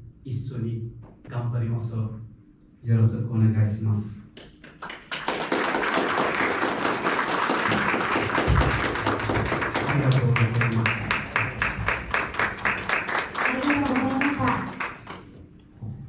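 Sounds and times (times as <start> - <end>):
rhythmic clapping: 4.3 - 15.4
audience applause: 4.7 - 15.3.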